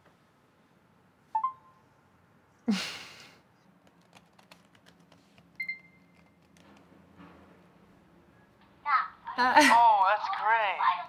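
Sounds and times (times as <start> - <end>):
two-note chat alert: 1.4 - 1.8.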